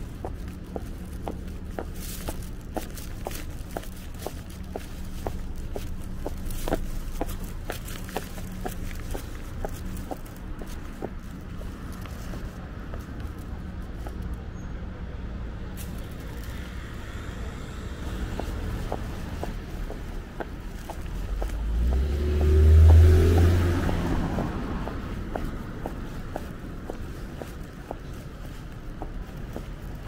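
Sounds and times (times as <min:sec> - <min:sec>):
faint footsteps: 0:00.0 - 0:14.4, 0:15.8 - 0:30.0
city street hum: 0:00.0 - 0:30.0
car passing by: 0:15.8 - 0:30.0.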